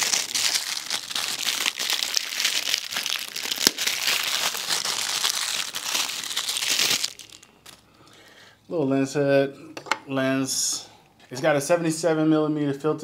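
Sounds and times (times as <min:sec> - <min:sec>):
plastic bag crinkling: 0:00.0 - 0:07.9.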